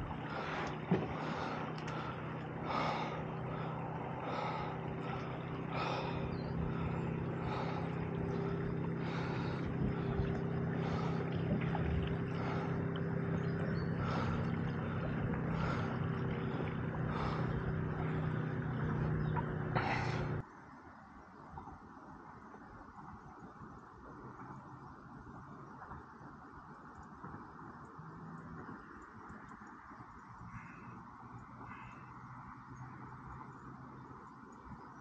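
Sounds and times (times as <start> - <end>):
boat motor humming: 0.0 - 20.4.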